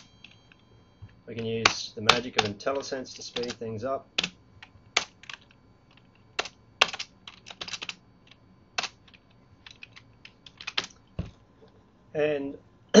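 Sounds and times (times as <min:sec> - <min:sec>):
keyboard typing clicks: 0:02.1 - 0:03.6.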